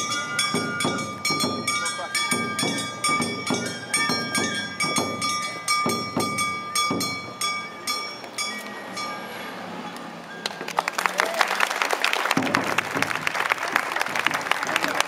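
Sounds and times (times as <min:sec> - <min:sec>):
drums beating: 0:00.0 - 0:08.1, 0:12.2 - 0:15.0
high held melodic tone: 0:00.0 - 0:10.6.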